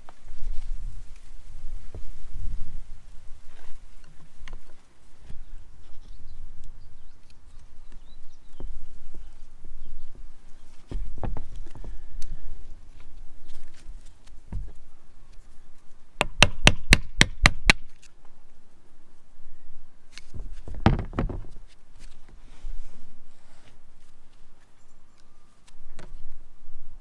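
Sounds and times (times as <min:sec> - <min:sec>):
dull thuds: 0:20.4 - 0:21.6.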